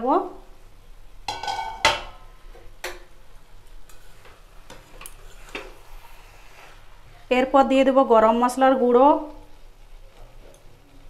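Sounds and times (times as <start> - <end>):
metal spatula clanging on pan: 1.3 - 2.2.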